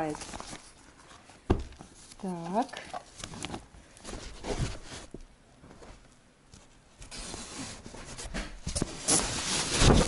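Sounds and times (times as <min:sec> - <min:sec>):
fabric storage cube rustling: 0:02.2 - 0:06.0, 0:07.0 - 0:10.0.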